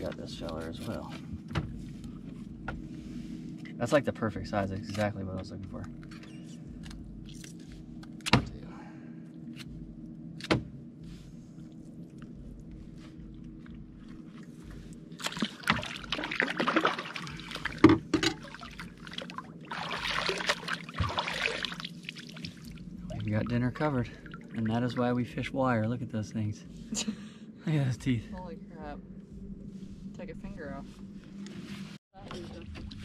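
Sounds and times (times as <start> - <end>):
low hum: 0.0 - 33.0
water splashing: 13.5 - 25.8.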